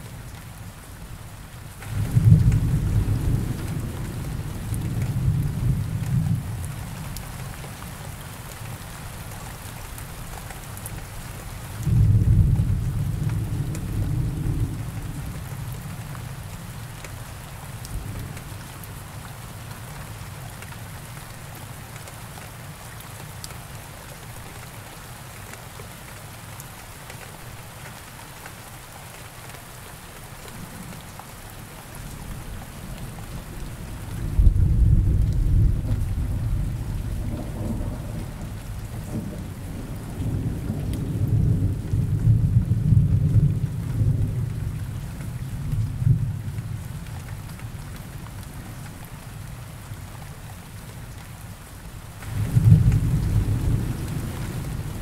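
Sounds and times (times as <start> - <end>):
steady rain: 0.0 - 55.0
thunder rumbling: 33.3 - 44.8, 52.2 - 55.0.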